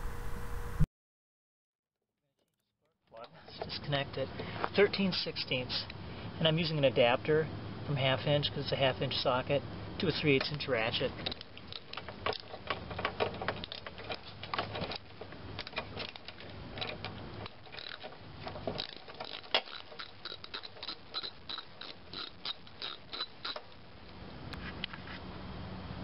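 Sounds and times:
socket ratchet clicking: 0:11.2 - 0:23.7.

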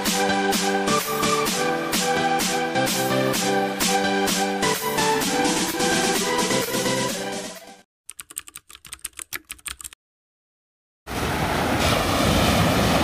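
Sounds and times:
electronic background music: 0:00.0 - 0:07.9
keyboard typing clicks: 0:08.1 - 0:10.0
sea surf rushing: 0:11.1 - 0:13.0.

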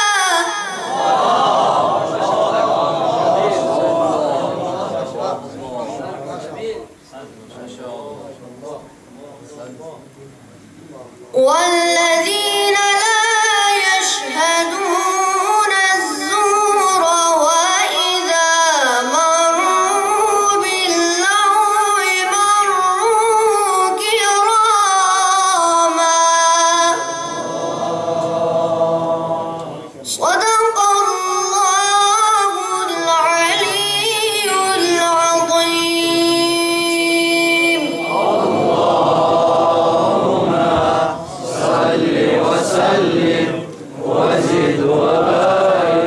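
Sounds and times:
boy chanting recitation: 0:00.0 - 0:46.0.

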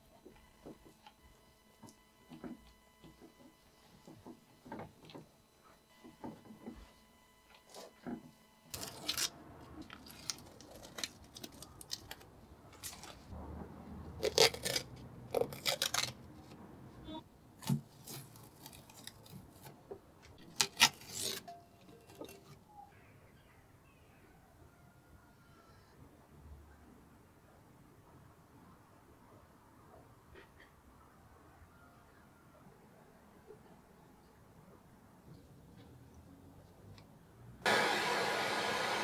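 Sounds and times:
masking tape tearing: 0:08.7 - 0:09.4, 0:10.0 - 0:13.3, 0:14.2 - 0:16.2, 0:17.6 - 0:19.7, 0:20.4 - 0:21.5.

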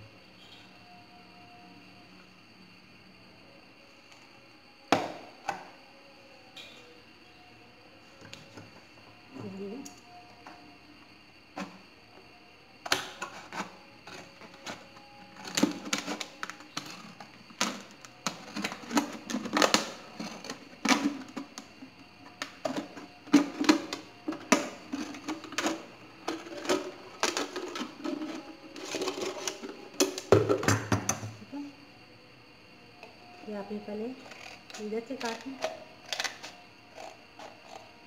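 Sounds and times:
scissors crunching plastic bottle: 0:34.3 - 0:37.9.

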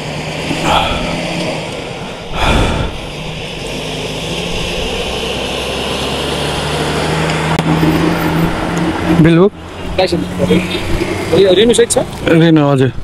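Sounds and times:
rush of noise: 0:00.0 - 0:08.8
vehicle engine droning: 0:00.0 - 0:13.0.

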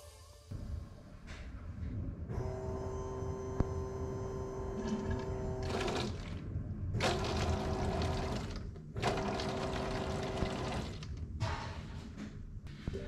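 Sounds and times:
electric fuel pump hum: 0:02.3 - 0:11.3.

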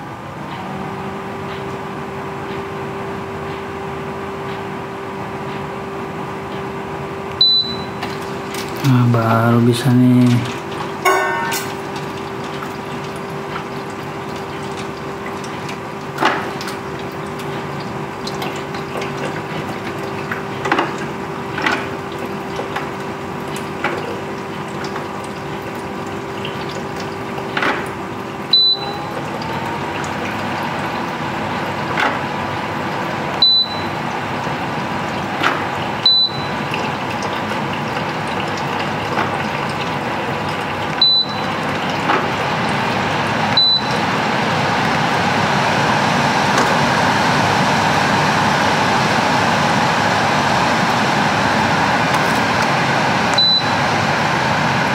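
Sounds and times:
fan blowing: 0:00.0 - 0:54.9
steady hum: 0:00.0 - 0:54.9
control panel beeps: 0:07.4 - 0:08.0, 0:11.0 - 0:11.7, 0:28.5 - 0:29.2, 0:33.4 - 0:34.0, 0:36.0 - 0:36.6, 0:41.0 - 0:41.5, 0:43.5 - 0:44.0, 0:53.3 - 0:53.8
water trickling: 0:07.4 - 0:47.2.

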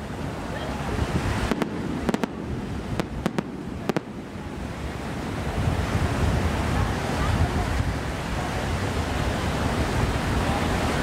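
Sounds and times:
steady low rumble: 0:01.0 - 0:06.8
firework shell bursts: 0:01.4 - 0:04.7.

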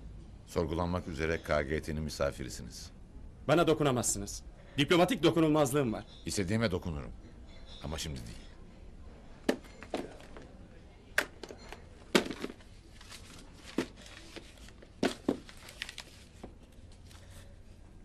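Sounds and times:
rustling: 0:12.0 - 0:17.8.

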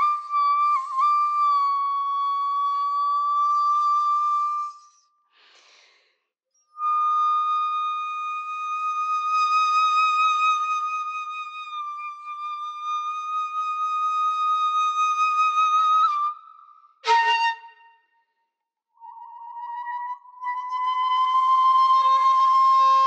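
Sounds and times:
bamboo flute long notes: 0:00.0 - 0:05.0, 0:06.7 - 0:18.1, 0:19.0 - 0:23.0
person breathing: 0:05.3 - 0:06.3.

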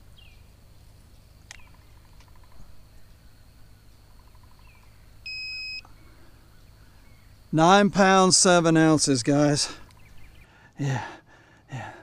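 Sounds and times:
faint bird chirps: 0:00.0 - 0:07.6, 0:09.8 - 0:10.7
high electronic beep: 0:05.3 - 0:05.8.

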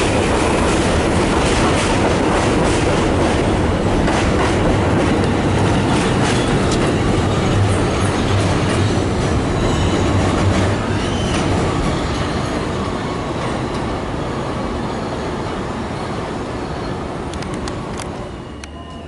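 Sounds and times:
train wheels rumbling on rails: 0:00.0 - 0:19.0
train wheel squeal: 0:05.8 - 0:17.2, 0:18.0 - 0:19.0.

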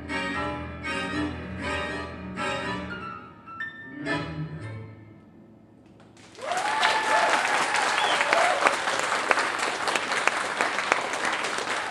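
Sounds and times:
audience applauding: 0:06.0 - 0:11.9
people cheering: 0:06.2 - 0:11.9.

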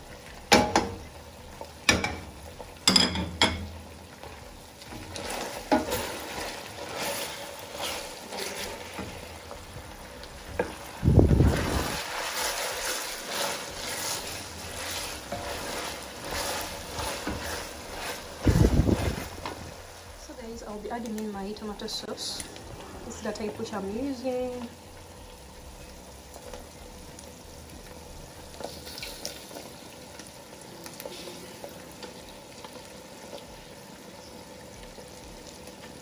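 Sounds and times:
meat sizzling in a pot: 0:00.0 - 0:36.0
wooden spatula scraping a pot: 0:04.8 - 0:09.6, 0:10.4 - 0:19.7
low rumble: 0:21.7 - 0:25.0.

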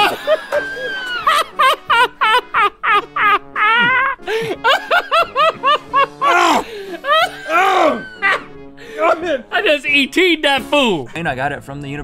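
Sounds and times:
men laughing hard: 0:00.0 - 0:09.5.

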